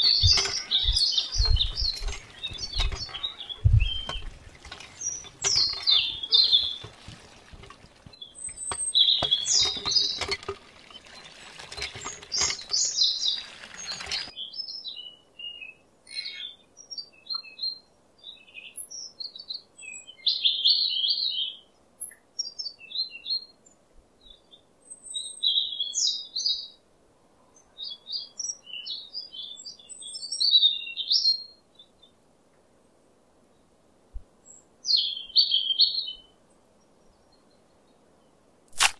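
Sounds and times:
water trickling and splashing: 0.0s - 14.3s
small birds chirping: 0.0s - 26.8s, 34.4s - 38.4s.

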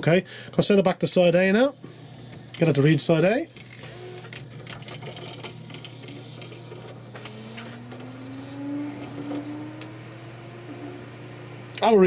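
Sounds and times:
disc player mechanism whirring and clicking: 1.8s - 12.0s
motor whine rising in pitch: 5.2s - 12.0s.

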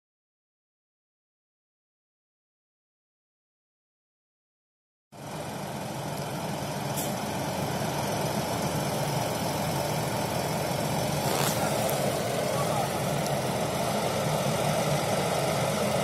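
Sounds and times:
tractor diesel engine idling: 5.2s - 16.0s.

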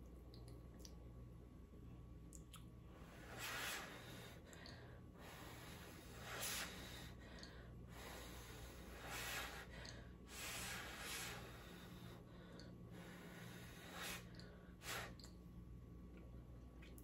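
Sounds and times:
low steady hum: 0.0s - 17.0s
puffs of breath blowing: 3.0s - 15.2s.

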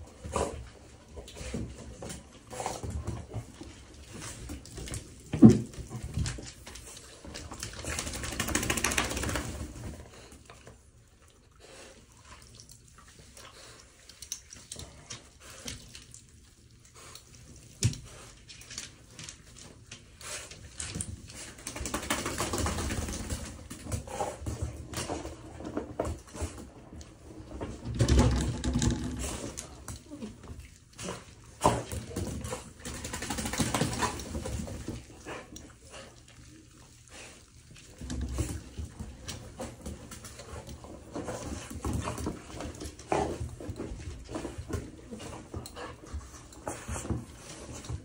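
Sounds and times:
shower water running and splashing: 3.8s - 23.8s.

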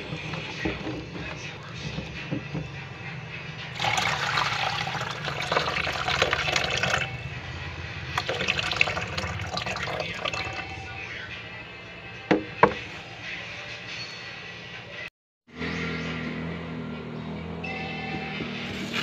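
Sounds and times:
water splashing in a basin: 3.8s - 7.2s, 8.2s - 10.8s.

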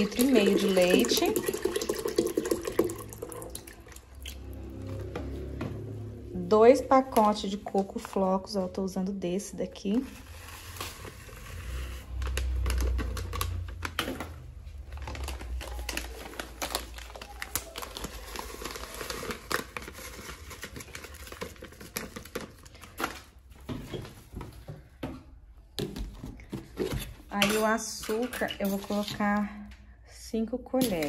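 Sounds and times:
low handling rumble: 4.0s - 8.1s
plastic packet crinkling: 10.2s - 23.4s.

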